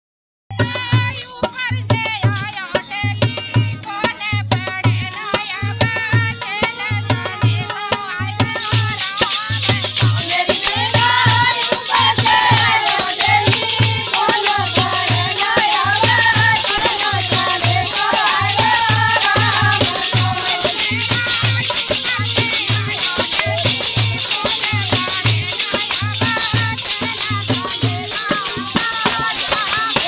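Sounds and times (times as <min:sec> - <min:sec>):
shaken rattling percussion: 0:00.6 - 0:30.0
hand drum beat: 0:05.8 - 0:30.0.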